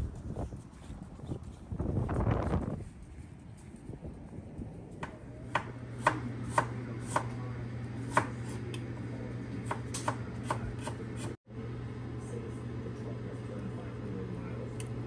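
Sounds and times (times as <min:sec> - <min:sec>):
steady low hum: 0:00.0 - 0:15.0
knife chopping on cutting board: 0:05.0 - 0:07.3, 0:08.0 - 0:08.6, 0:09.6 - 0:11.3.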